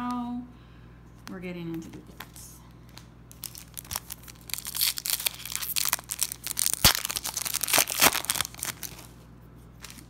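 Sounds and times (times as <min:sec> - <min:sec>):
foil wrapper crinkling: 0:03.3 - 0:09.2.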